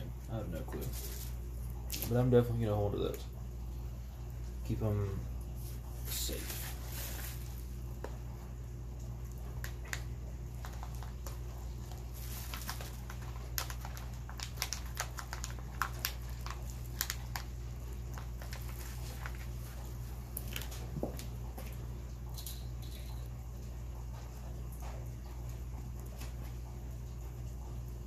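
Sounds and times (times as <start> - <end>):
plastic bag rustling: 0.8 - 2.2, 5.6 - 7.9, 10.5 - 21.0.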